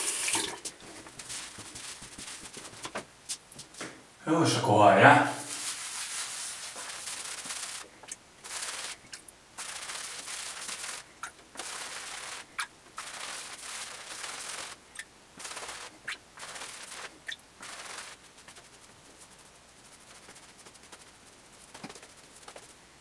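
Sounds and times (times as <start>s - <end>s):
shaving brush scrubbing lather: 5.4s - 11.0s, 11.6s - 14.8s, 15.4s - 22.8s.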